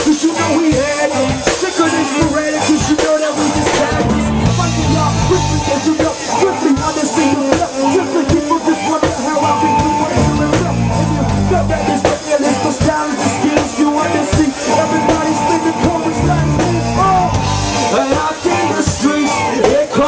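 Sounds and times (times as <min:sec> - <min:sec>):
live hip-hop band music: 0:00.0 - 0:20.0
heavy bass swells: 0:03.6 - 0:05.9, 0:10.1 - 0:12.0, 0:15.9 - 0:18.0.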